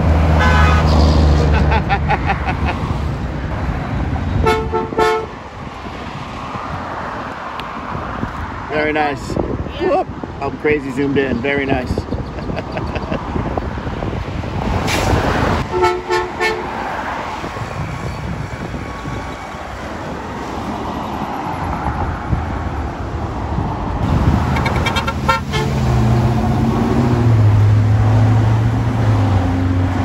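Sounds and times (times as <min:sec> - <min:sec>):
road traffic: 0:00.0 - 0:30.0
vehicle horn toots: 0:00.4 - 0:01.2, 0:04.4 - 0:05.4, 0:15.7 - 0:16.7, 0:24.5 - 0:25.8.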